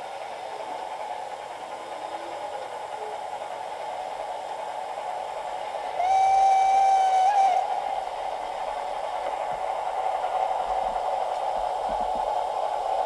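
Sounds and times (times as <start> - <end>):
steady hiss: 0.0 - 13.0
steam locomotive whistle: 6.0 - 7.8.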